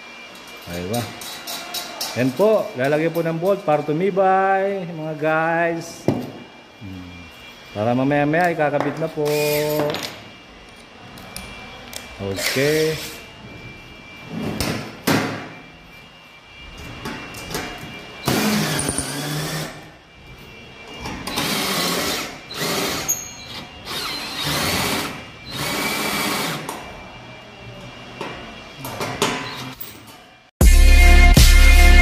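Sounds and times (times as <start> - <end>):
cordless drill boring into sheet metal: 9.2 - 9.7, 12.3 - 13.2, 18.2 - 19.8, 21.3 - 26.7.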